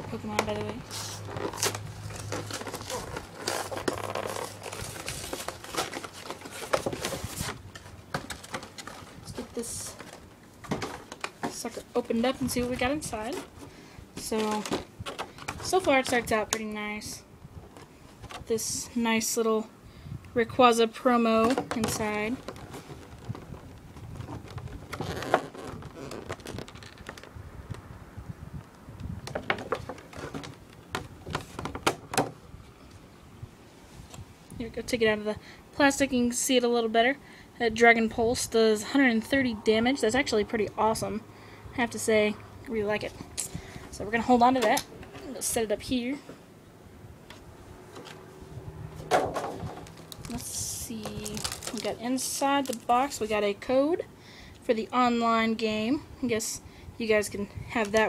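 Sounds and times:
packaging crinkling and rustling: 0.1s - 16.6s, 21.4s - 27.9s, 29.2s - 32.2s, 49.1s - 53.4s.

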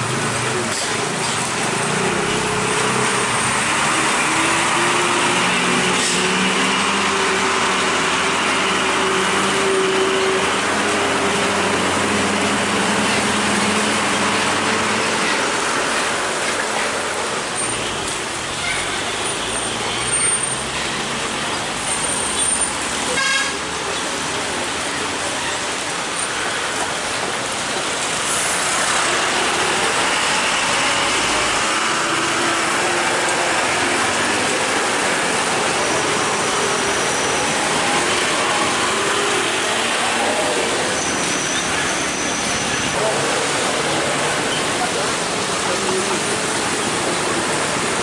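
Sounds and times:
tyres hissing on wet road: 0.0s - 48.0s
vehicle engines running: 0.0s - 48.0s
horn tooting: 23.1s - 23.6s.

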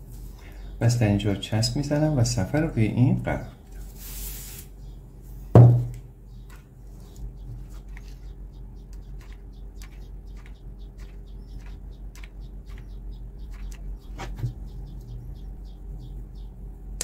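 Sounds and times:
faint low hum: 0.0s - 17.0s
thud: 5.6s - 6.0s
small clicks and squeaks: 6.4s - 15.1s.

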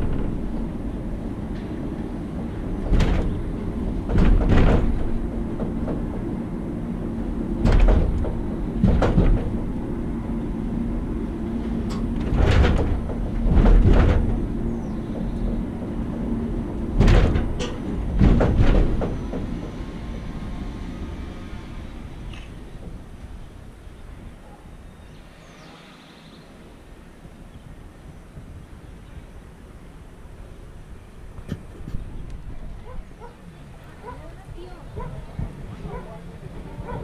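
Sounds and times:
car clunks and rattles: 0.0s - 2.0s, 2.6s - 6.4s, 7.2s - 10.2s, 11.6s - 20.3s
drive hum: 0.0s - 25.3s
funicular car rumbling: 0.0s - 37.0s.

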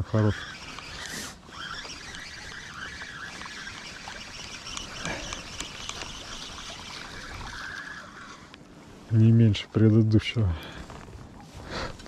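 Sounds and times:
fish splashing and thrashing: 0.0s - 8.9s
water trickling: 0.1s - 8.8s
short splashy clicks: 0.5s - 7.8s.

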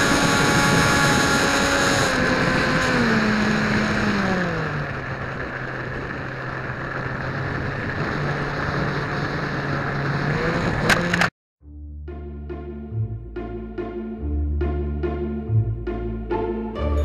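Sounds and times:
model airplane motor whining: 0.0s - 11.3s.

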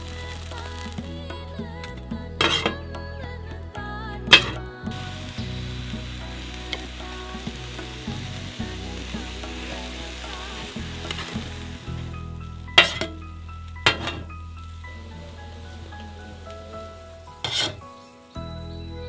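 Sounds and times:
oil sizzling on griddle: 0.0s - 1.4s, 4.3s - 18.6s
blade clanging on iron plate: 2.4s - 2.8s, 4.3s - 4.6s, 12.8s - 13.2s, 13.9s - 14.3s, 17.4s - 17.8s
metal blades scraping griddle: 2.4s - 2.8s, 12.8s - 13.2s, 13.9s - 14.3s, 17.4s - 17.8s.

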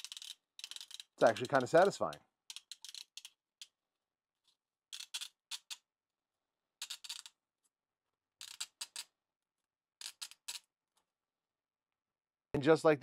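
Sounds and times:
plastic layers crackling snaps: 0.0s - 2.2s.

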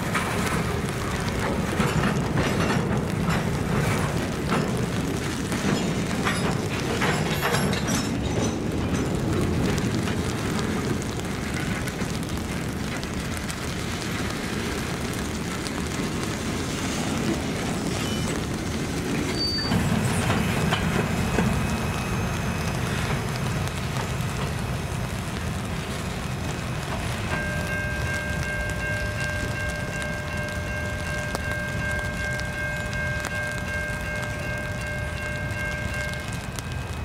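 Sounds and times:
rain falling: 0.0s - 37.0s
steel wheels rumbling on rail: 0.0s - 37.0s.

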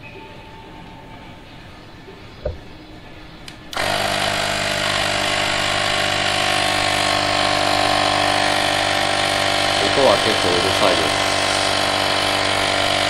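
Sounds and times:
electric air compressor running: 3.7s - 13.0s.

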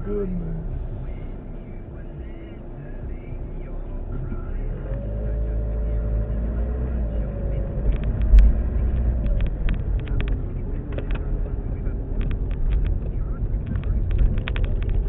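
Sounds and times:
car engine accelerating: 0.0s - 15.0s
light ticks and rattles: 7.8s - 15.0s.

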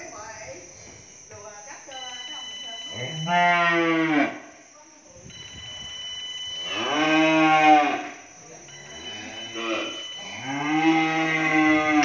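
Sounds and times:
cattle mooing: 3.0s - 4.4s, 6.7s - 8.1s, 9.0s - 12.0s.

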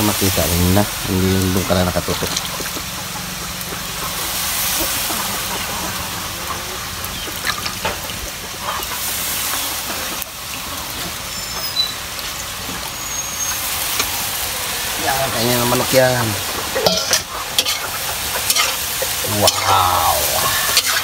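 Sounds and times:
noodles sizzling in a wok: 0.0s - 21.0s
water dripping and splashing: 0.2s - 4.2s, 7.0s - 14.6s.

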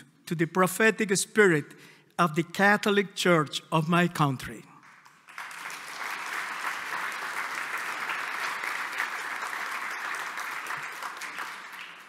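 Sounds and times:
large audience applauding: 4.8s - 12.0s.

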